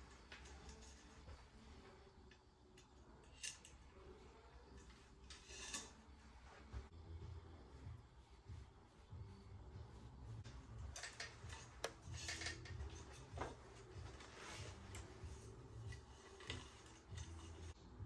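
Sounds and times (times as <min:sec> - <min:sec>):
low steady hum: 0:00.0 - 0:18.0
cables clicking and rubbing: 0:10.4 - 0:17.8.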